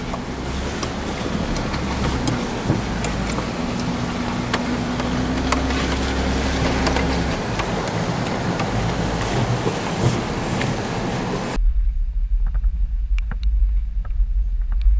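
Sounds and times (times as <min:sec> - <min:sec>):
car engine running: 0:00.0 - 0:11.6.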